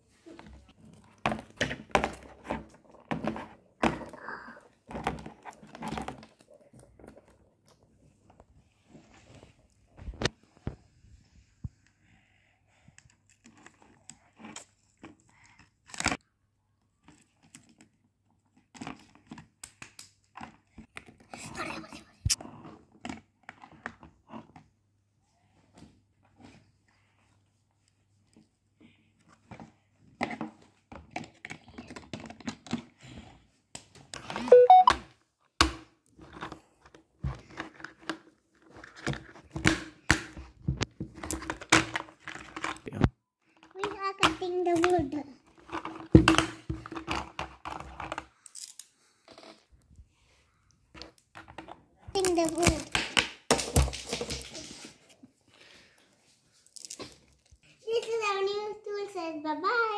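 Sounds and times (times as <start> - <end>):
plastic toy parts clicking and rattling: 43.6 - 48.9.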